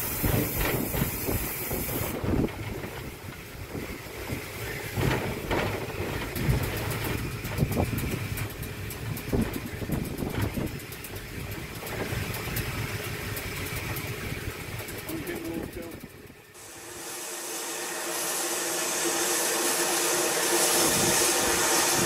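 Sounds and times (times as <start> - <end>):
vehicle engine rumbling: 0.0 - 16.7.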